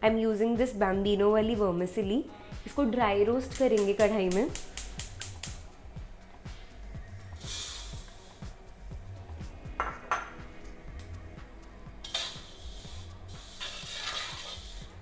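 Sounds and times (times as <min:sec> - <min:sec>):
spatula scraping vermicelli in pan: 0:12.1 - 0:14.9.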